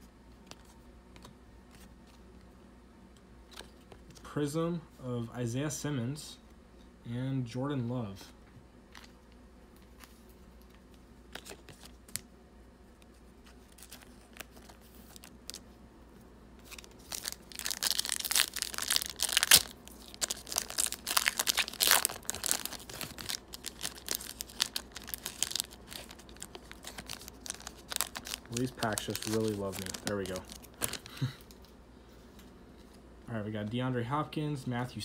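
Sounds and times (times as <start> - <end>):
wrapper tearing and crinkling: 13.6 - 15.6, 16.6 - 31.4.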